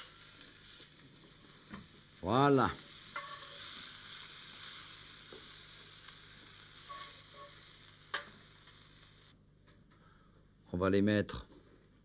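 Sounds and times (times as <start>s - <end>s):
seafood sizzling in frying pan: 0.0s - 9.3s.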